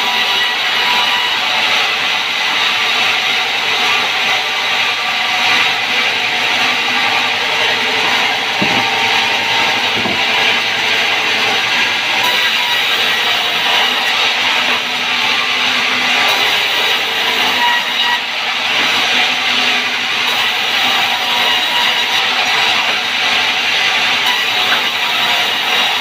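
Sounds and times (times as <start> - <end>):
band saw cutting timber: 0.0 - 26.0
low knocks: 8.0 - 10.8.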